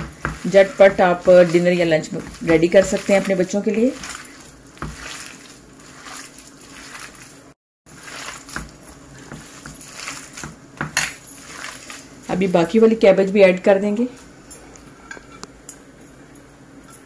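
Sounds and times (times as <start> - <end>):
hands squishing food mixture: 0.0 - 12.4.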